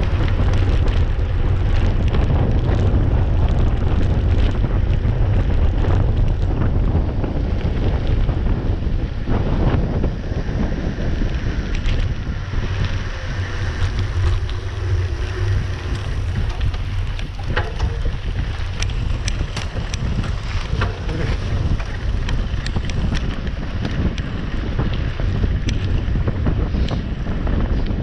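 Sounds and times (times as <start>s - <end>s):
bike clicks and rattles: 0.0s - 28.0s
wind buffeting microphone: 0.0s - 28.0s.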